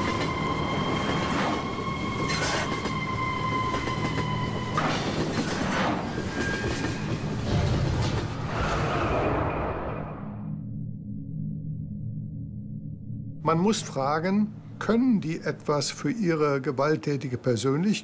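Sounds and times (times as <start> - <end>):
subway train rumble: 0.0 - 10.1.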